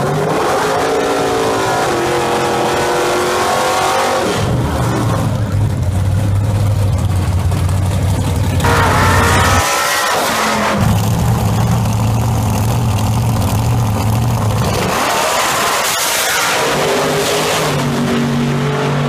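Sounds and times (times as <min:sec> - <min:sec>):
car engines revving in burnouts: 0:00.0 - 0:19.0.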